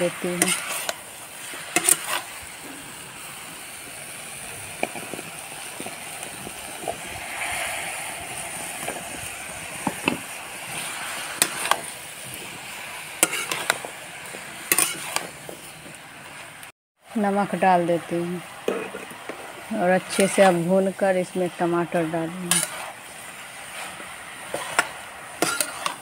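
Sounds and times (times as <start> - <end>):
vegetables sizzling in hot oil: 0.0 - 26.0
metal spatula scraping pan: 0.1 - 2.4, 7.2 - 12.4, 13.2 - 15.7, 18.6 - 20.8, 21.5 - 26.0.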